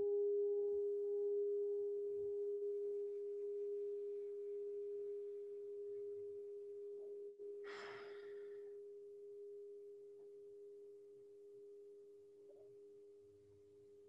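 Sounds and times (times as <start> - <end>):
meditation bowl ringing: 0.0 - 7.4
lower bowl tone: 0.0 - 7.6, 8.7 - 13.2
short breath: 7.6 - 8.7.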